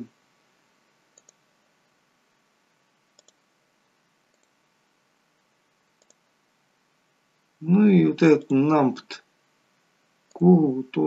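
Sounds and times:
computer mouse clicks: 1.1 - 1.4, 3.1 - 3.5, 4.3 - 4.6, 6.0 - 6.2.

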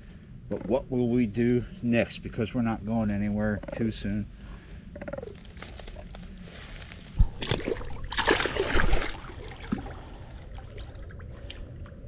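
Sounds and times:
splashing and sloshing water: 6.7 - 12.0
fish thumping in water: 7.2 - 9.9.

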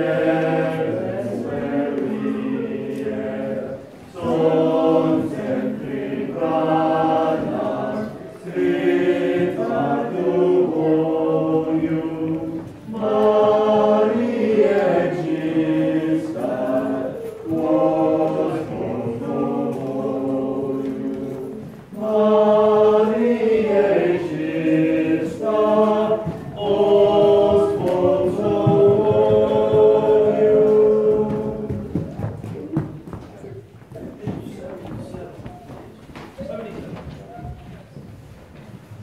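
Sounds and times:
group of voices chanting a cappella: 0.0 - 32.0.

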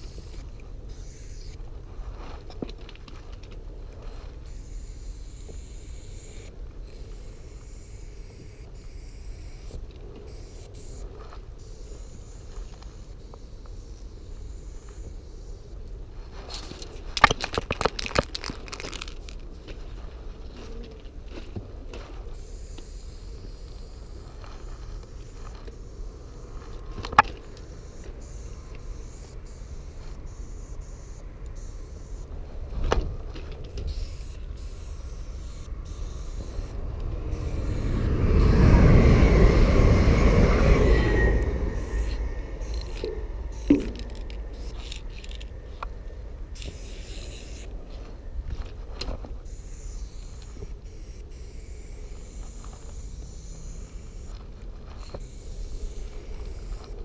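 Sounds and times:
spray paint can hissing: 0.0 - 1.6, 4.4 - 15.8, 16.5 - 19.4, 22.3 - 32.3, 33.8 - 45.5, 46.5 - 47.7, 49.4 - 54.4, 55.0 - 57.0
rushing noise: 34.0 - 47.5.

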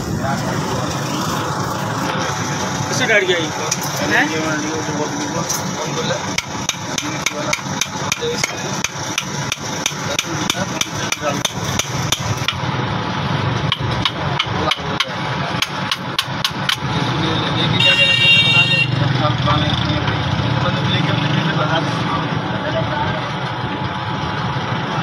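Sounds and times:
hammer tapping on metal: 6.3 - 12.7, 13.6 - 16.9.

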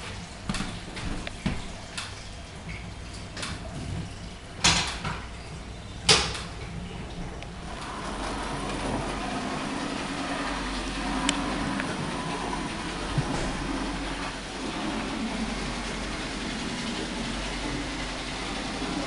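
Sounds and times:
model train whirring on track: 7.8 - 19.0.

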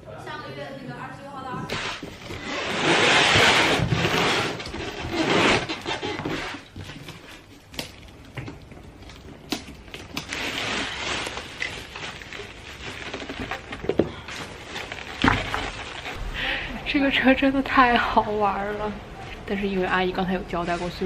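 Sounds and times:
cardboard box tearing: 1.7 - 6.8
plastic wrapping crinkling: 1.7 - 16.7.

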